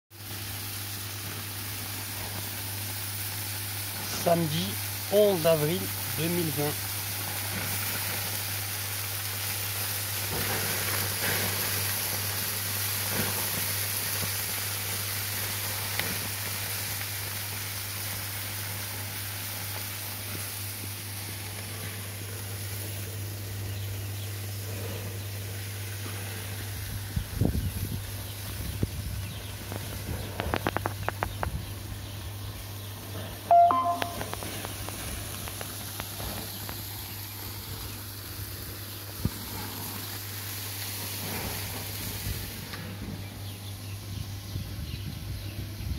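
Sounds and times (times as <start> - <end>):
meat sizzling on a grill: 0.1 - 45.9
short sharp pitched sound: 33.5 - 34.3.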